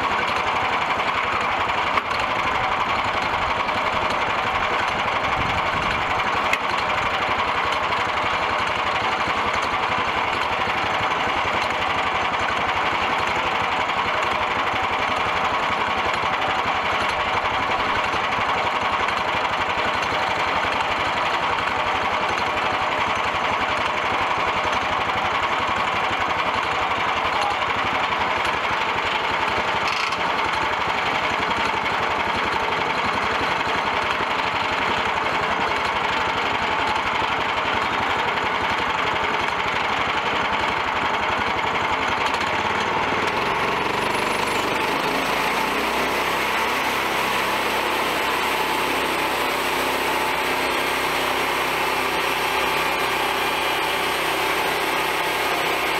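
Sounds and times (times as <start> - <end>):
small gas engine running: 0.0 - 55.9
saw blade cutting wood: 42.8 - 55.9.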